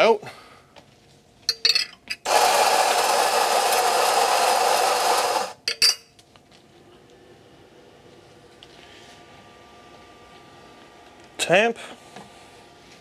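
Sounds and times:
coffee grinder motor grinding: 2.3 - 5.6.

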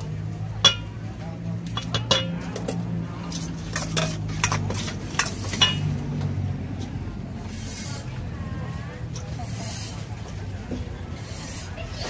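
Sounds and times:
metal utensils and dishes clinking: 0.6 - 1.1, 1.7 - 6.2.

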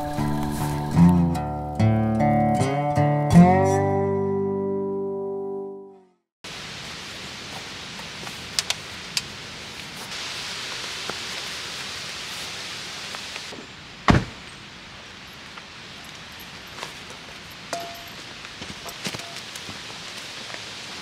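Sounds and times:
steady hiss: 6.5 - 21.0
truck door shutting: 14.1 - 14.4.

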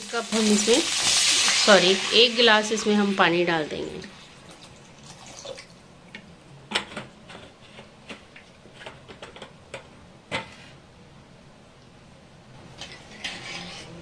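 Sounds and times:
crackling and popping in hot oil: 0.0 - 9.9.

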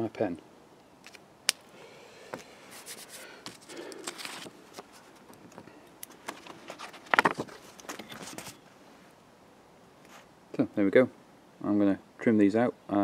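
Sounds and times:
paper rustling: 2.7 - 8.6.

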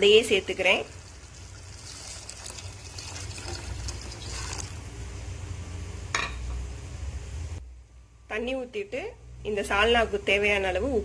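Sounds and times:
water pouring into a pot: 0.0 - 4.9.

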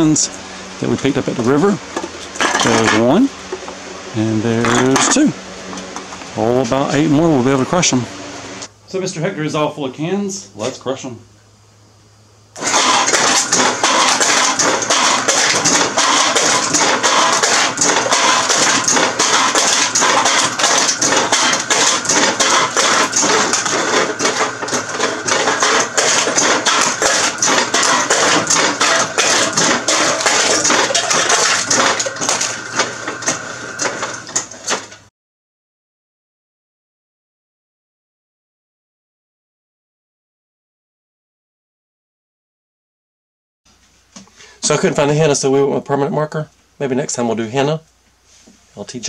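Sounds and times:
motor hum: 0.0 - 35.1
cans crushing with metallic clatter: 12.6 - 35.0.

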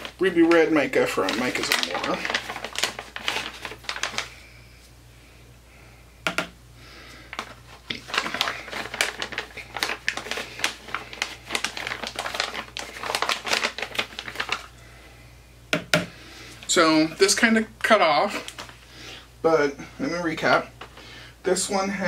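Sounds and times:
powder ticking and crinkling: 0.0 - 4.5, 7.0 - 14.8, 16.4 - 19.2, 20.0 - 21.8
container tap: 6.3 - 6.6.

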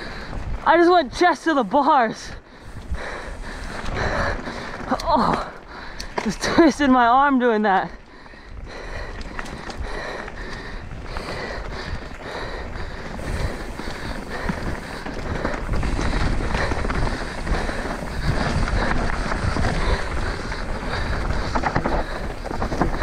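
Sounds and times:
bike rattling over bumps: 0.0 - 23.0
bike tyres rolling over dirt: 0.0 - 23.0
wind on microphone: 8.6 - 23.0.

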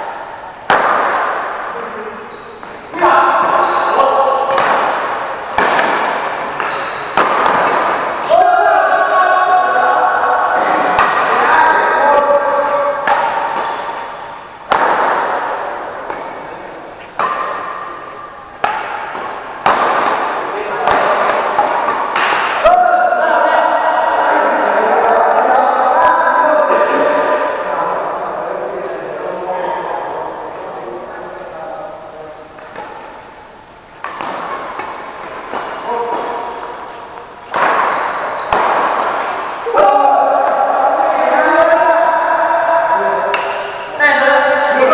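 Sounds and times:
rackets striking shuttlecock: 0.6 - 1.6, 2.3 - 8.2, 13.0 - 22.6, 34.0 - 39.7, 43.3 - 43.9
shoes squeaking on court: 2.2 - 8.3, 13.3 - 14.5, 17.0 - 22.6, 24.3 - 25.1, 28.2 - 29.0, 31.3 - 33.2, 34.0 - 39.5.

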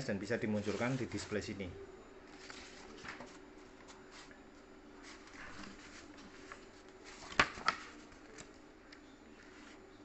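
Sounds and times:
paper rustling: 0.5 - 1.4, 2.3 - 4.4, 5.0 - 8.6
paper pages slapping: 2.4 - 4.0, 5.1 - 8.6.

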